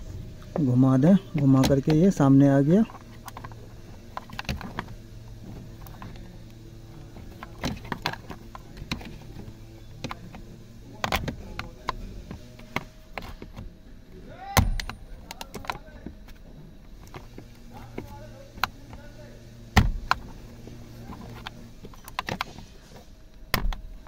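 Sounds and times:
steady low hum: 0:00.0 - 0:24.0
screwdriver clicking on plastic: 0:14.6 - 0:16.0.

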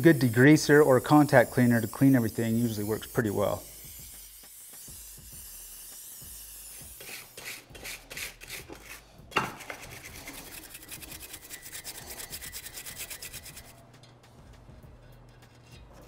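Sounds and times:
brush scrubbing metal: 0:00.0 - 0:03.6, 0:07.0 - 0:13.8.

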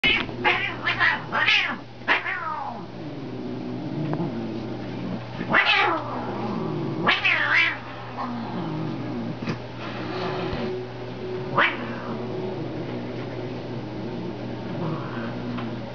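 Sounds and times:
cat yowling: 0:00.1 - 0:02.8, 0:05.5 - 0:06.2, 0:07.0 - 0:08.3, 0:11.6 - 0:12.2
cat growling low: 0:00.1 - 0:10.8, 0:11.5 - 0:15.9.

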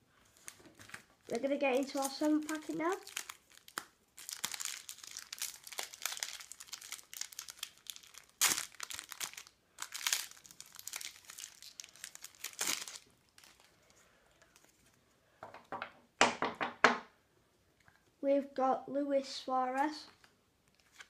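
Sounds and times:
foil wrapper ripping: 0:00.4 - 0:13.7
foil wrapper crinkling: 0:00.4 - 0:13.9.

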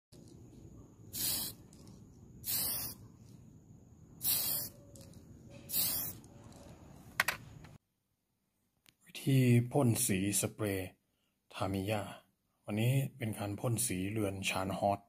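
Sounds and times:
aerosol spray can hissing: 0:01.0 - 0:03.4, 0:04.2 - 0:06.7.

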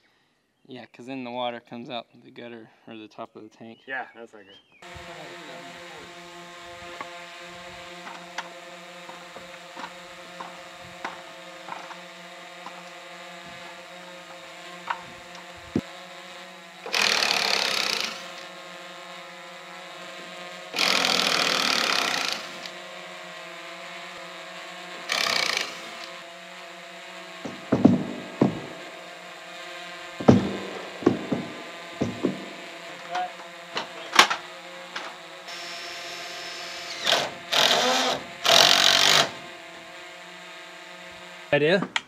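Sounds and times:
power drill boring into wood: 0:04.8 - 0:26.8, 0:30.0 - 0:39.6
knocks: 0:27.4 - 0:28.8, 0:30.2 - 0:32.6.

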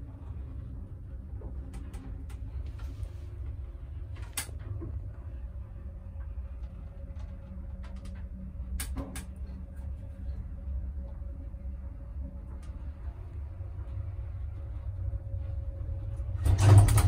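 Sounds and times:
elevator rumble: 0:00.0 - 0:17.0.

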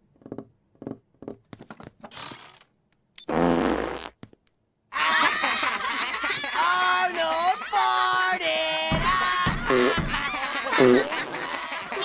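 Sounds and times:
cartoon fart sound effect: 0:03.3 - 0:04.2, 0:09.7 - 0:10.0, 0:10.7 - 0:11.5.

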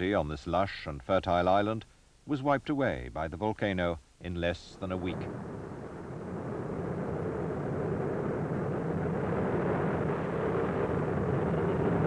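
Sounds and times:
aircraft engine drone: 0:04.8 - 0:12.0.

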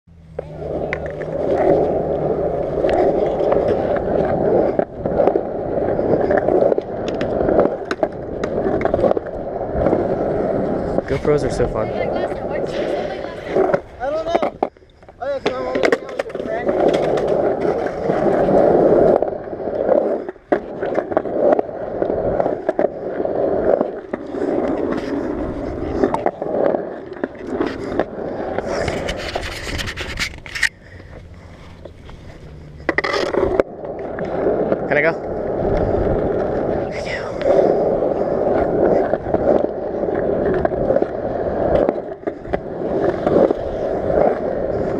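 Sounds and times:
skateboard wheels rolling on concrete: 0:00.1 - 0:44.9
skateboard clacks: 0:00.3 - 0:44.9.

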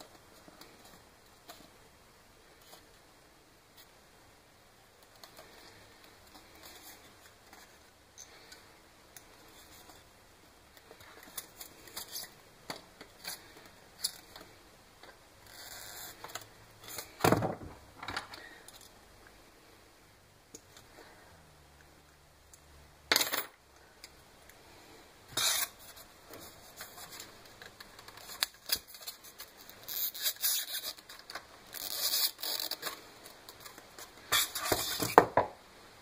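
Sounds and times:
small clicks and rustles: 0:05.0 - 0:10.1, 0:25.8 - 0:35.2.

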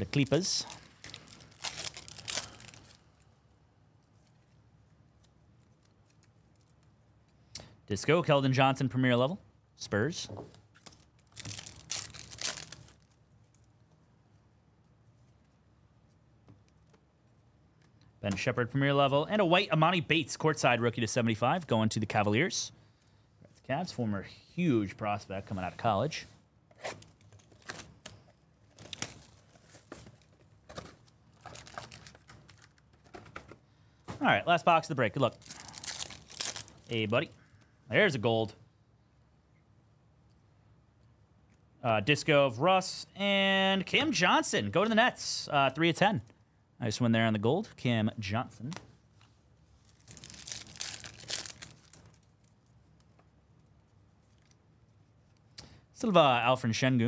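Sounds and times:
faint handling of cards: 0:00.0 - 0:07.7, 0:10.2 - 0:18.5, 0:25.3 - 0:37.8, 0:48.5 - 0:55.8
wrapper crinkling and tearing: 0:00.6 - 0:03.0, 0:10.8 - 0:13.2, 0:28.8 - 0:29.9, 0:31.3 - 0:32.8, 0:35.3 - 0:37.1, 0:49.8 - 0:52.5
cardboard box crinkling and tearing: 0:50.0 - 0:52.0.

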